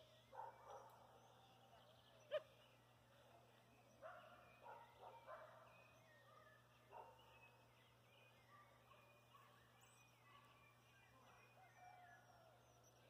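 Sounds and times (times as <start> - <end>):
distant dog barking: 0.3 - 2.6, 4.0 - 5.8.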